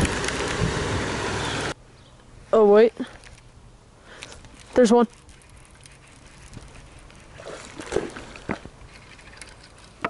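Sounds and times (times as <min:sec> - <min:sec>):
water sloshing and splashing: 0:04.6 - 0:10.0.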